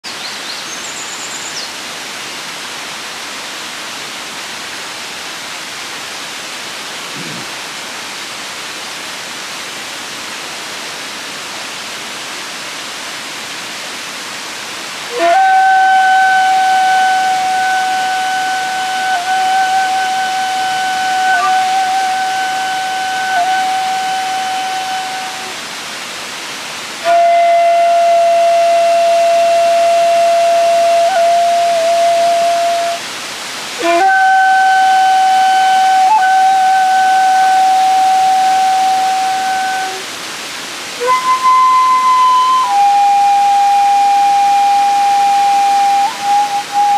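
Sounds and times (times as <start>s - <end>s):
waterfall rushing: 0.0s - 46.9s
bamboo flute long notes: 15.0s - 25.7s, 27.0s - 40.2s, 40.9s - 46.9s.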